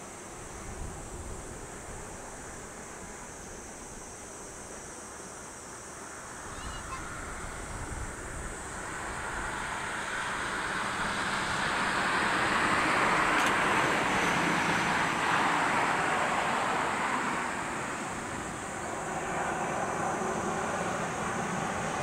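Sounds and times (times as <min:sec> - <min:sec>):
jet airliner passing overhead: 0:06.2 - 0:22.0.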